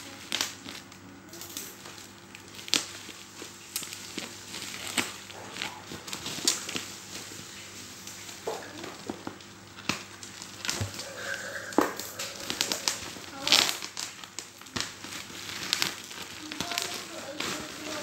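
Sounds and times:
bubble wrap crinkling: 0.0s - 18.0s.

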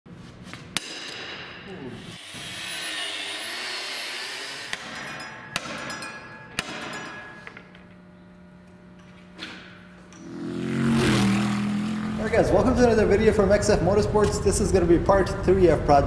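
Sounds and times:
hammer striking steel: 0.8s - 7.8s.

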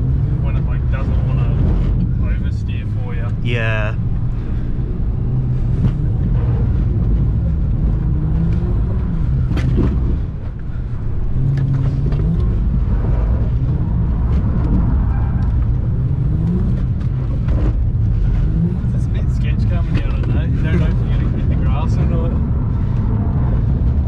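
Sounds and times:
car engine revving: 11.3s - 24.0s.

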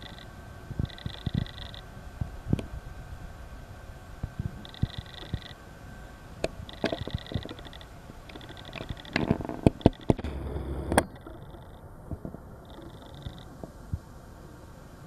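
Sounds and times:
insects chirping: 0.0s - 1.9s, 4.6s - 5.6s, 6.7s - 9.2s, 12.6s - 13.6s
sharp clicks: 6.7s - 11.8s
low rumble: 10.2s - 13.0s.

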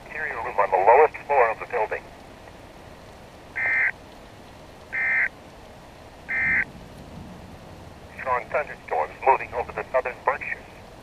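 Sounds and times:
buzzy data bursts over radio: 3.6s - 3.9s, 6.3s - 6.6s.

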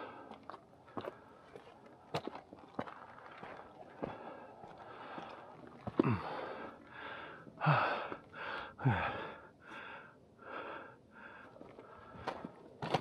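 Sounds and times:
person breathing hard: 6.0s - 12.3s.

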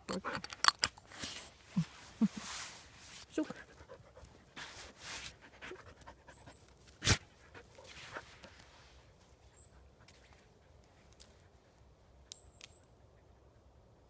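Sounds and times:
soft rustling: 1.1s - 5.4s
dog panting: 3.4s - 8.2s.

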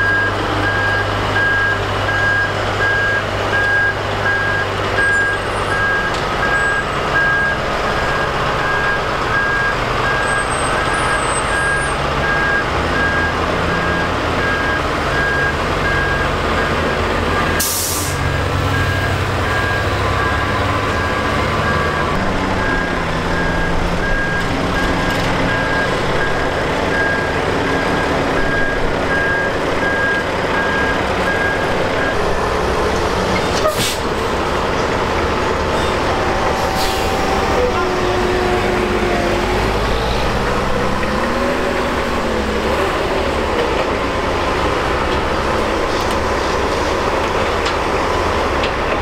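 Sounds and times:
reversing alarm beeping: 0.0s - 32.5s
diesel truck engine running: 0.0s - 49.0s
air brake hiss: 17.6s - 18.3s, 33.6s - 34.1s, 36.6s - 37.3s.

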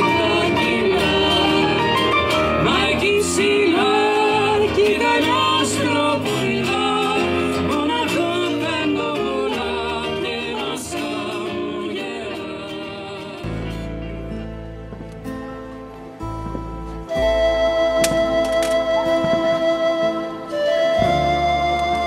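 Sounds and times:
woman singing: 0.0s - 13.5s
man singing: 0.0s - 13.8s
strummed acoustic guitar: 0.0s - 22.0s.

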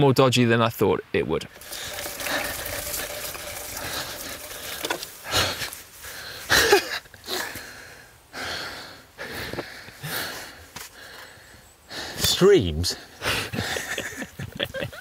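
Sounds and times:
men laughing: 13.2s - 15.0s.

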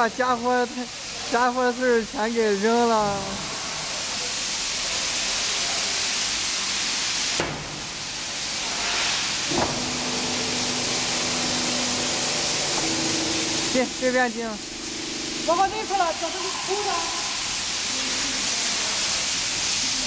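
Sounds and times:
pressurised gas hissing: 0.7s - 20.0s
steady machine hum: 9.3s - 18.6s.

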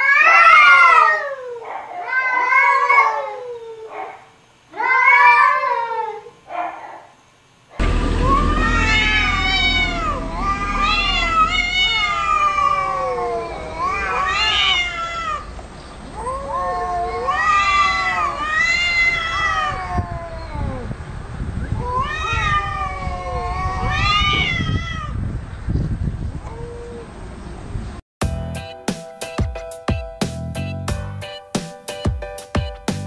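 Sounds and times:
cats yowling: 0.0s - 7.1s, 7.8s - 21.0s, 21.8s - 25.2s.

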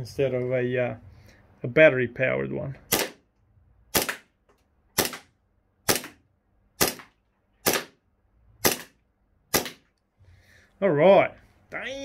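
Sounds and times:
gel blaster pistol shots: 2.9s - 3.2s, 3.9s - 4.3s, 5.0s - 5.3s, 5.9s - 6.2s, 6.8s - 8.0s, 8.6s - 9.8s.

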